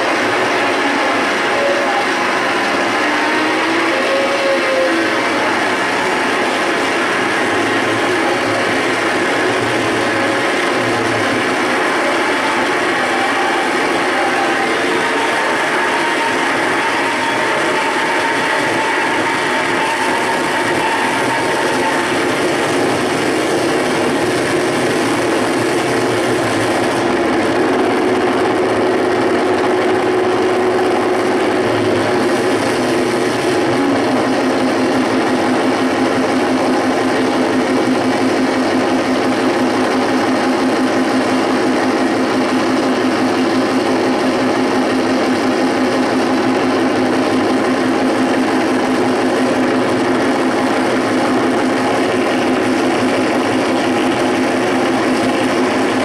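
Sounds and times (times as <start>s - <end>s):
droning tone: 0.0s - 39.6s
loud wall of noise: 0.0s - 56.0s.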